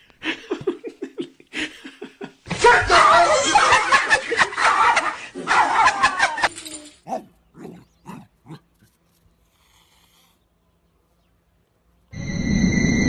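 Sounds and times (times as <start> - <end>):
person laughing loudly: 0.2 - 2.4, 3.0 - 6.5.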